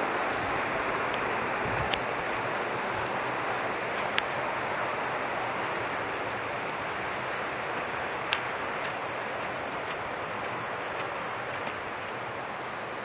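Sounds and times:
waterfall and stream rushing: 0:00.0 - 0:13.0
light clicks: 0:07.8 - 0:09.0.

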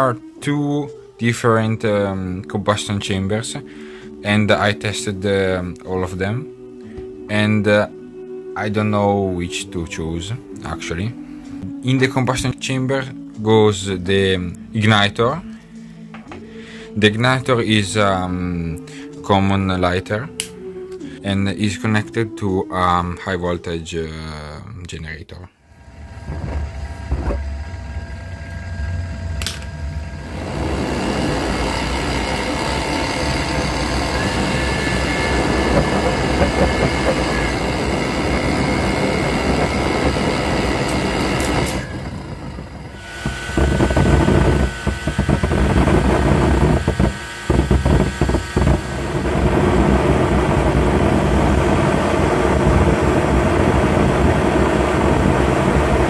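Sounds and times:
click: 0:20.4 - 0:21.0
electric motor whine: 0:25.6 - 0:56.0
jet engine rush of air and flame: 0:26.0 - 0:56.0.

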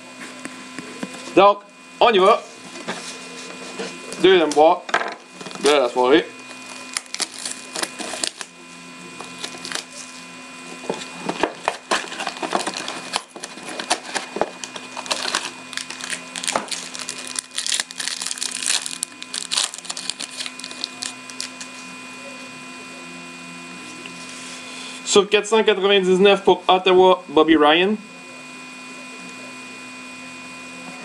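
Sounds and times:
cardboard packaging tearing: 0:06.4 - 0:08.5, 0:09.2 - 0:10.2, 0:10.8 - 0:21.7
plastic wrapping crinkling: 0:06.4 - 0:08.5, 0:09.2 - 0:10.1, 0:10.9 - 0:21.7.

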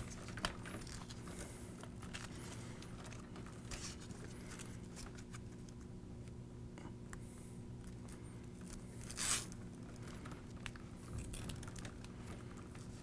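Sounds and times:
cables rustling: 0:00.0 - 0:05.9, 0:07.8 - 0:13.0
low steady hum: 0:00.0 - 0:13.0.

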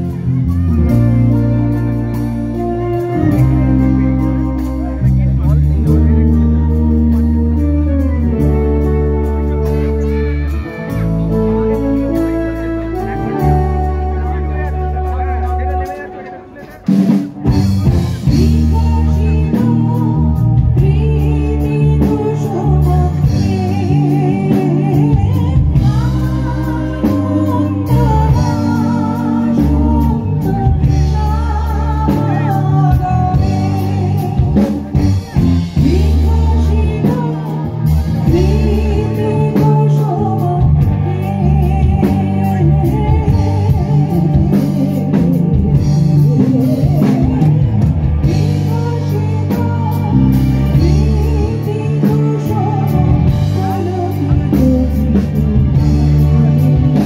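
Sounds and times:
drum kit: 0:00.0 - 0:57.0
electric guitars: 0:00.0 - 0:57.0
woman singing into a microphone: 0:18.1 - 0:57.0.

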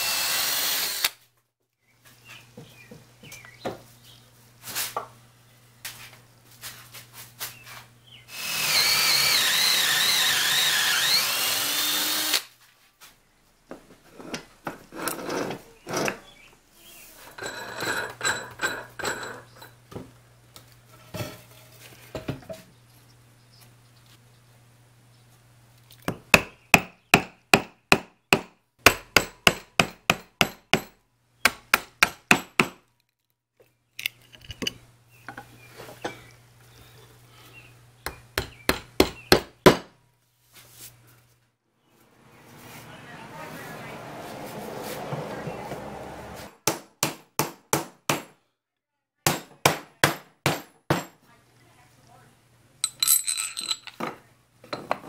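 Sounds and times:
chisel striking wood: 0:26.1 - 0:32.8, 0:38.0 - 0:39.9.

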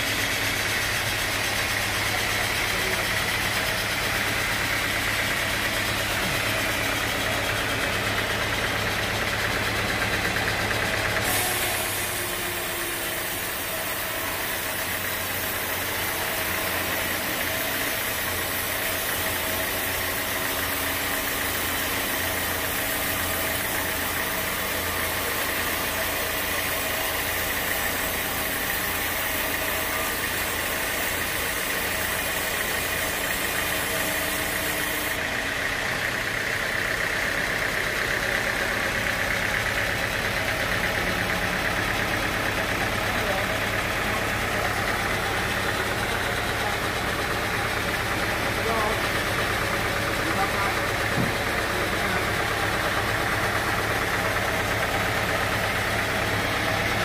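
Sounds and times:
band saw drone: 0:10.1 - 0:36.4
saw blade cutting wood hiss: 0:11.2 - 0:35.2.

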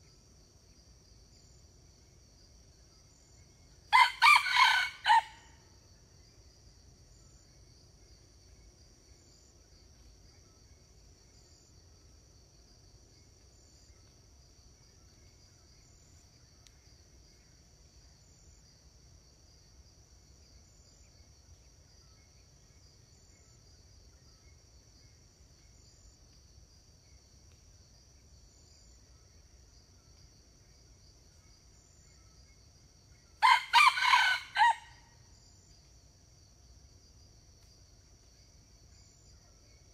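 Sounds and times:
insects droning: 0:00.0 - 0:39.9
rooster crowing: 0:03.9 - 0:05.5, 0:33.4 - 0:35.0.

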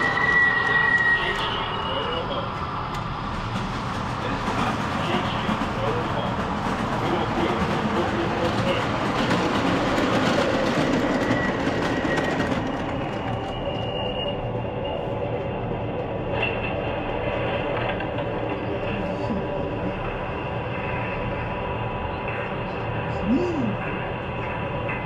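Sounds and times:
model trains rolling rumble: 0:01.1 - 0:14.5.

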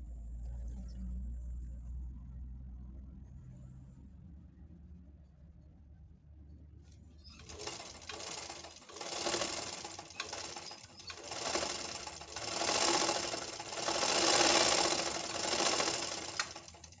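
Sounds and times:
sewing machine whirring: 0:07.2 - 0:17.0.

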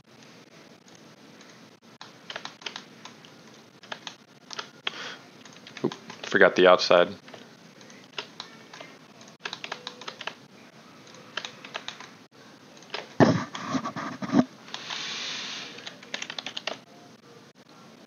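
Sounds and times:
keyboard keys and mouse clicking: 0:00.2 - 0:06.4, 0:07.2 - 0:10.4, 0:11.0 - 0:12.2, 0:12.8 - 0:15.1, 0:15.8 - 0:16.8
brief hiss: 0:14.7 - 0:15.8.

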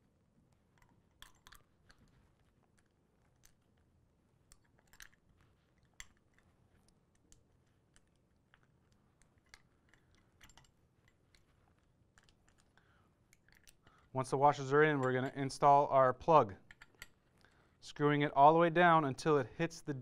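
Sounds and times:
small metal parts clicking: 0:00.7 - 0:03.8, 0:04.5 - 0:14.1, 0:16.6 - 0:17.6.

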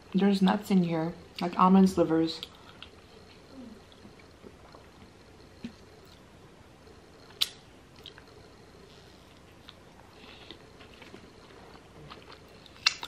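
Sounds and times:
crunchy chip being bitten and chewed: 0:09.5 - 0:13.0.

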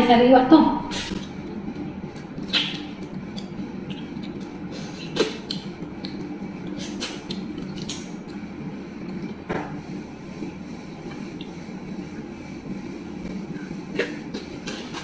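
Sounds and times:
low hum: 0:00.0 - 0:15.0
wet chewing and mouth smacks: 0:00.9 - 0:08.4.

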